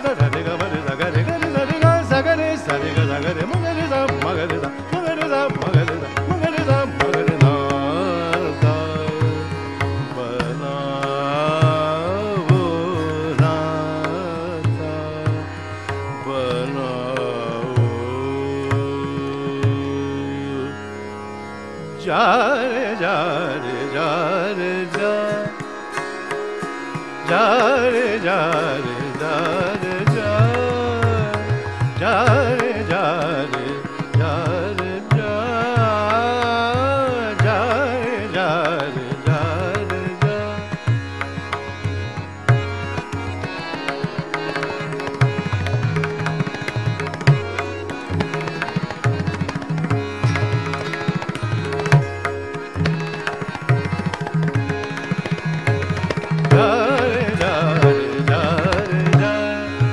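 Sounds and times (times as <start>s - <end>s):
man singing ornamented phrases: 0.0s - 20.9s, 22.0s - 25.6s, 27.2s - 42.0s, 55.4s - 59.9s.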